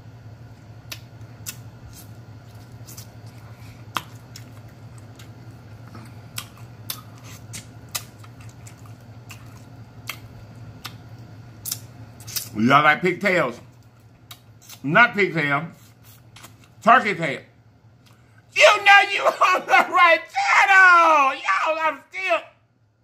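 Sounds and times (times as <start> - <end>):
steady low hum: 0.0 - 23.0
wet eating smacks: 0.8 - 12.6, 13.8 - 14.8.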